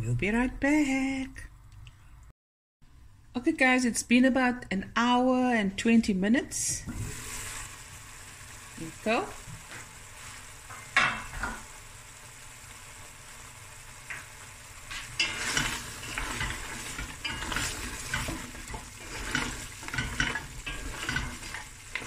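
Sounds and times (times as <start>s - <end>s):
gravy sizzling: 6.8s - 22.0s
wooden spoon scraping metal pot: 14.9s - 22.0s.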